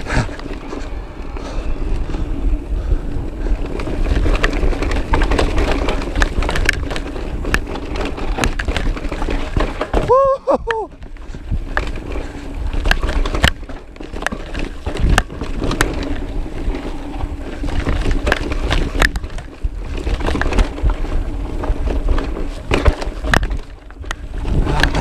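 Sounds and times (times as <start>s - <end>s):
bike rattling over bumps: 0.0s - 25.0s
rumble of wind and tyres: 0.0s - 25.0s.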